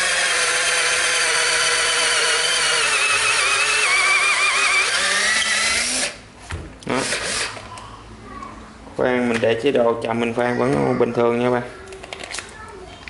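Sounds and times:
cordless drill drilling into wood: 0.0s - 6.2s, 7.0s - 7.6s.

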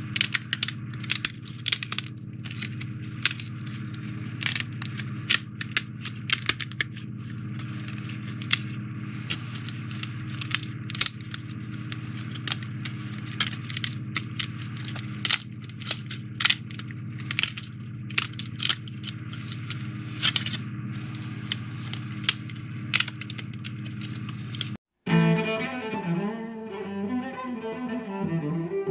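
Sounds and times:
foam pieces snapping out: 0.0s - 8.7s, 9.3s - 20.5s
steady low hum: 0.0s - 28.9s.

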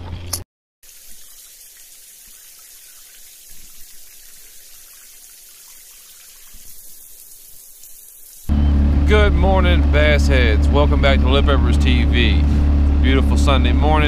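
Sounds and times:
water-like hiss: 0.8s - 8.5s.

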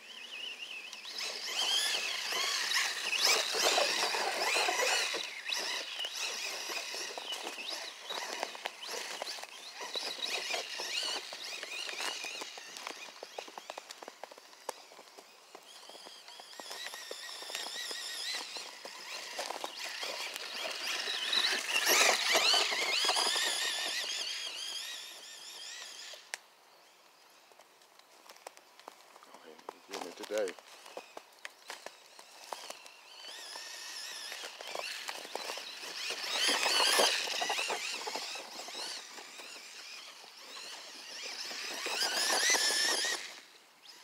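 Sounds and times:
electric motor whining: 0.1s - 26.3s, 31.8s - 44.0s
crunching clicks in snow: 0.9s - 26.4s, 27.5s - 43.4s.

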